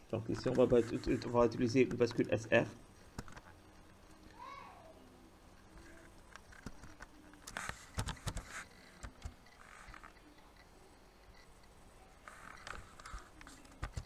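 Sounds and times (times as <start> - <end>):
mouse clicking: 5.8 - 10.7
typing on computer keyboard: 6.5 - 9.4.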